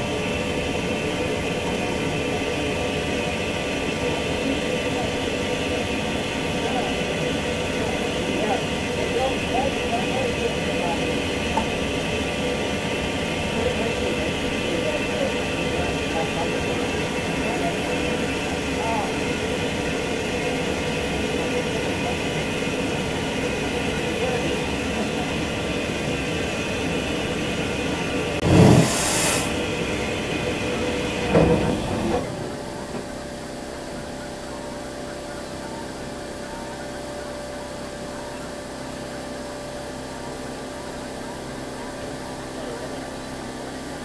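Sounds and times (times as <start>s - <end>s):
steam train running: 0.0s - 44.0s
loud steam hiss: 28.4s - 31.8s.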